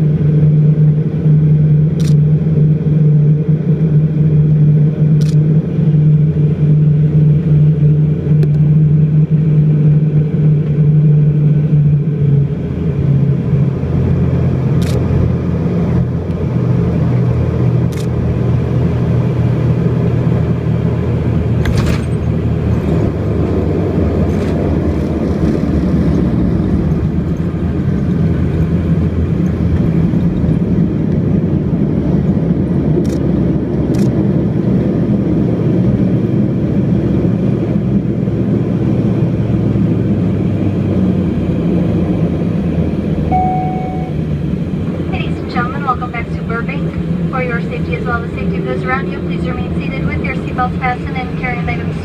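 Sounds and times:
propeller and engine hum: 0.0 - 52.0
runway rolling rumble: 0.0 - 52.0.

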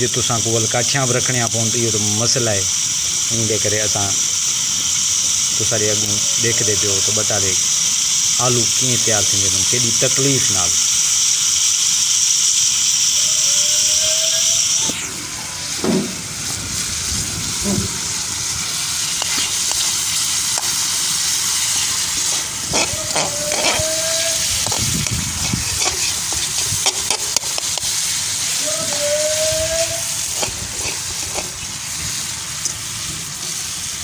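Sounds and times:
potato slices sizzling in oil: 0.0 - 34.0
spatula scraping and knocking pan: 19.2 - 19.9, 22.2 - 27.9, 30.3 - 31.6.

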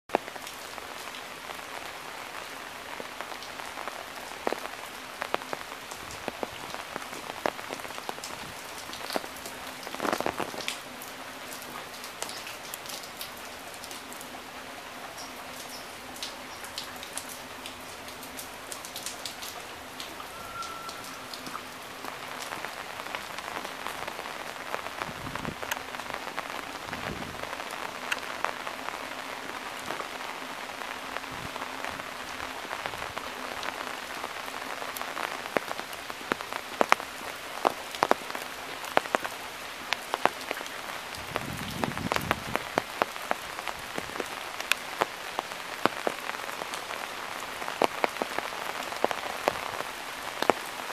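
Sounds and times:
steady rain falling: 0.1 - 50.9
close drip ticks: 28.0 - 28.5.

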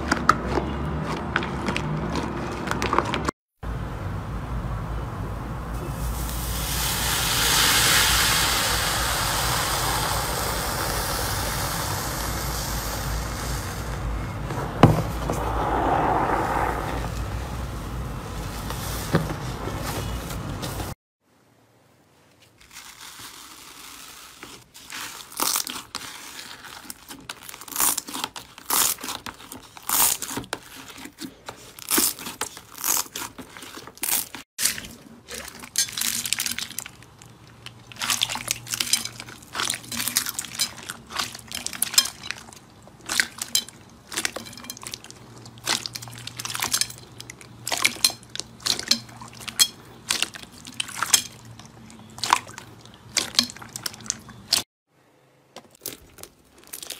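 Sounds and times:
hands squeezing slime: 22.6 - 54.6, 55.7 - 56.9.

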